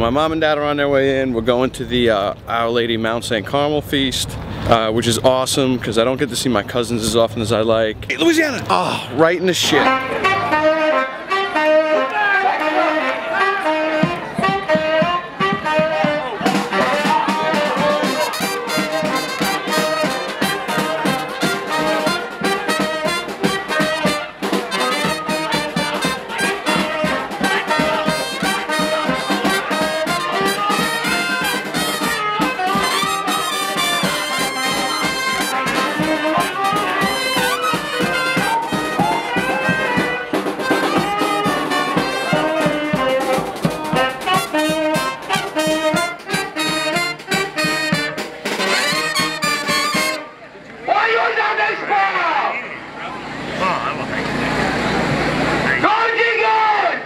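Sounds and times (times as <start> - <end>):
brass band playing: 8.1 - 8.8, 9.6 - 57.0
drum beating: 8.1 - 9.1, 13.6 - 50.2.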